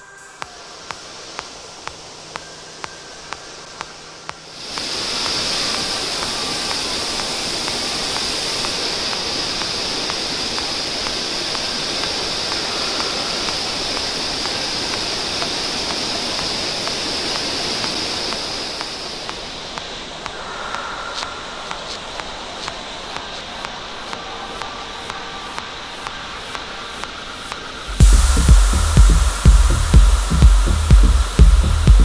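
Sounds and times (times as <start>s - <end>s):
stream rushing over rocks: 4.4s - 20.2s.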